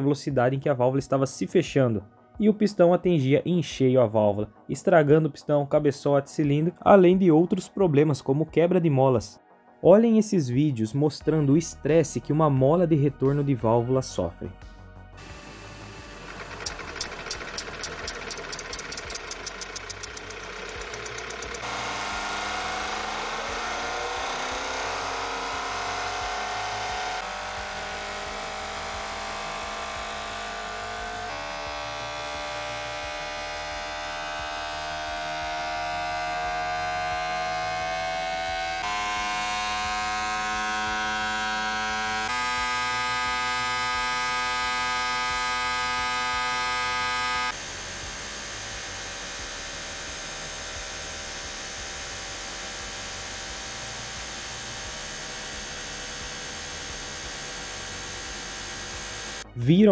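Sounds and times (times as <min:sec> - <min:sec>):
high-revving engine whine: 0:15.1 - 0:59.5
engine running steadily: 0:15.2 - 0:35.8, 0:37.4 - 0:59.5.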